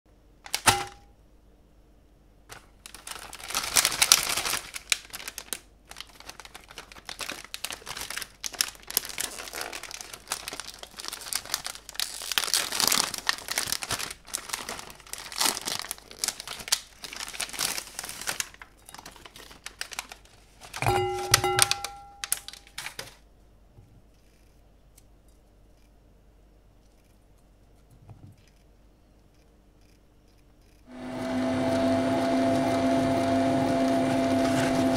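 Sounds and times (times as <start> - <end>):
plastic wrapper crinkling and tearing: 2.5 - 20.8, 21.6 - 23.2
cookies clattering into bowl: 2.9 - 23.2
bowl ringing: 20.8 - 22.6.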